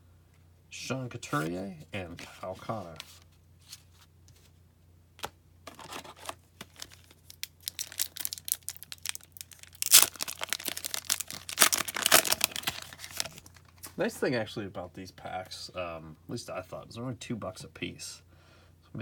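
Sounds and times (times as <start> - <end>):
wrapper tearing open: 5.7 - 13.7
card pack wrapper crinkling: 5.7 - 13.9.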